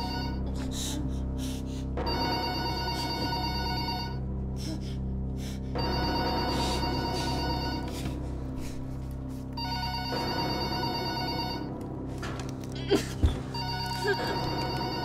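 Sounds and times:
telephone ringing electronically: 2.1 - 4.2, 9.6 - 11.8, 13.6 - 15.0.

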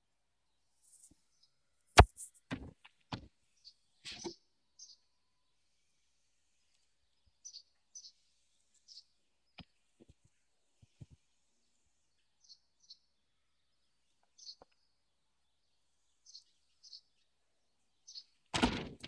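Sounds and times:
faint bird chirps: 3.5 - 18.5.

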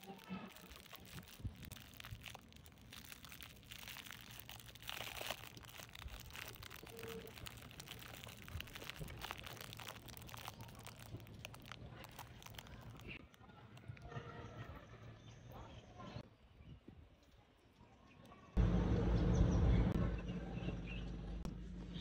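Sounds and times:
cellophane wrapper crinkling: 0.0 - 14.0.

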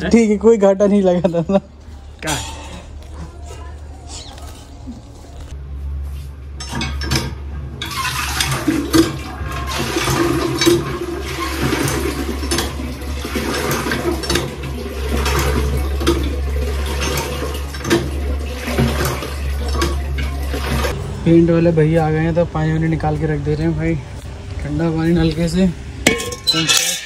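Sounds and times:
water gushing from a tap: 7.8 - 21.0.

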